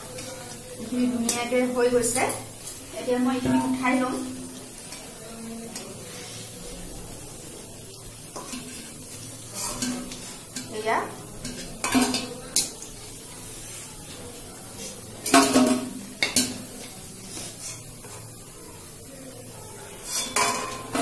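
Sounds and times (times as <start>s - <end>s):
frying oil sizzling: 0.0s - 21.0s
skimmer scraping and clinking on steel: 20.0s - 21.0s.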